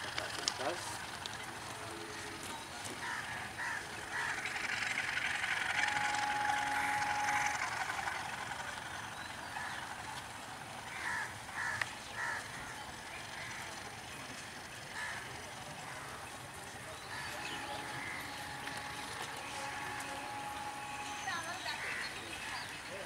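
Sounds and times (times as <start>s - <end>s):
diesel locomotive rushing: 0.0s - 23.0s
thin steady whine: 0.0s - 23.0s
crow cawing: 3.0s - 4.4s, 10.9s - 12.8s, 15.0s - 15.2s.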